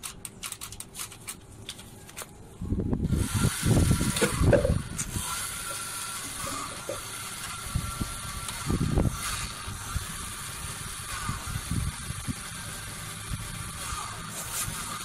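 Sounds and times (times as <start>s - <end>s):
toy car electric motor whine: 3.0s - 15.0s.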